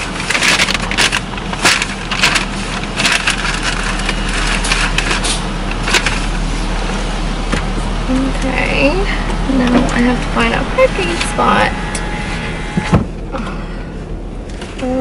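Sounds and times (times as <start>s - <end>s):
crackling handling noises: 0.0s - 8.5s
car engine idling: 0.0s - 15.0s.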